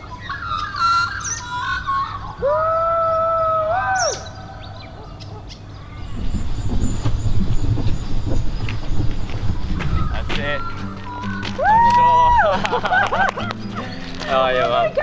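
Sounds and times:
long drawn-out bird call: 0.0 - 7.4
birds chirping and whistling: 0.0 - 15.0
low rumble: 5.9 - 10.8.

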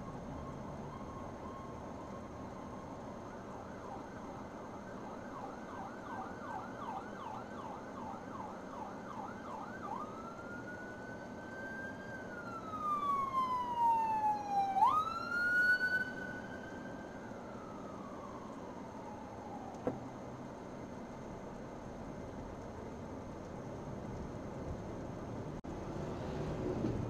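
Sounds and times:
emergency vehicle siren: 0.0 - 21.1
road noise: 0.0 - 27.0.

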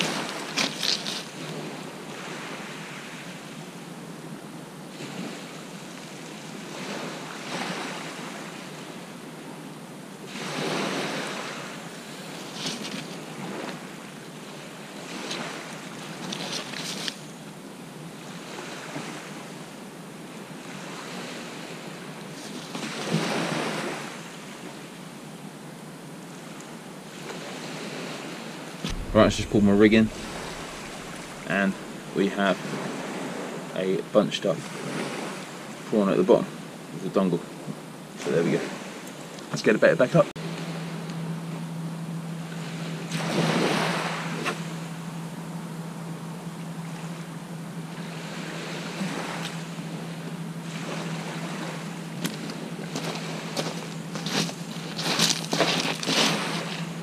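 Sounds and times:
waves washing up shingle: 28.8 - 36.1, 42.6 - 44.9, 47.9 - 56.9.

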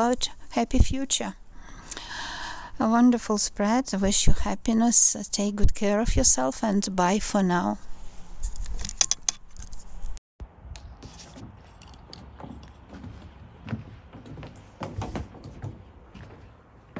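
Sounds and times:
footsteps on wooden deck: 10.9 - 16.9.

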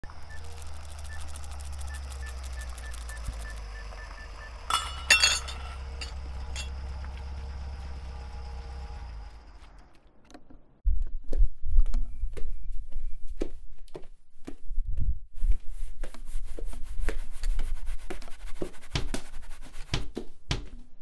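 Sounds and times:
low hum: 0.0 - 10.2
faint repeating beep: 0.3 - 4.7
glass clinking and breaking: 4.7 - 6.7.

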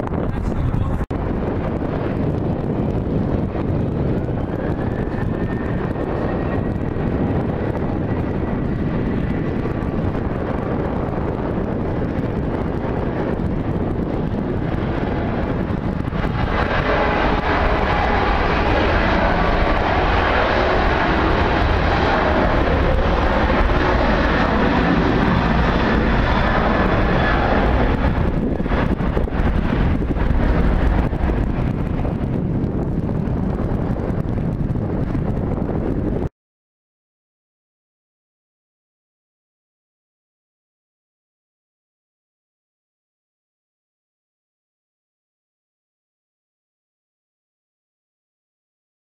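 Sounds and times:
jet fan whine: 0.0 - 36.2
jet engines rushing: 0.0 - 36.3.

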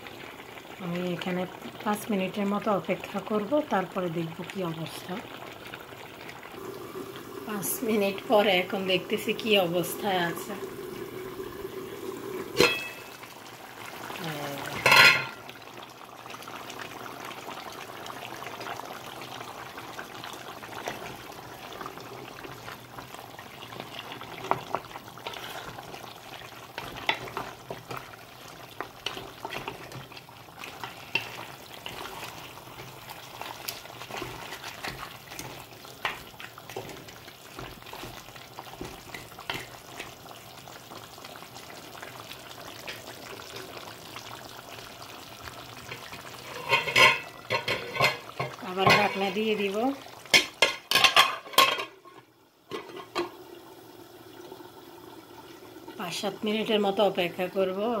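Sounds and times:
curry sizzling in metal pot: 0.0 - 58.0
wooden spatula scraping pot: 24.3 - 26.0, 28.8 - 40.2, 45.8 - 49.7.

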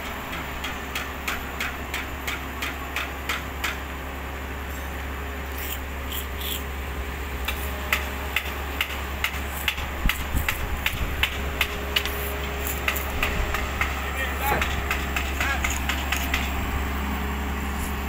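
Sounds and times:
excavator diesel engine: 0.0 - 18.0.

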